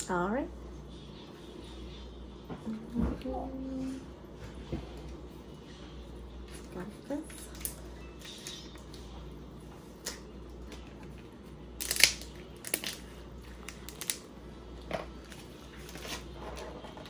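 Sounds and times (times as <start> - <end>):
crab shells cracking: 11.8 - 14.3.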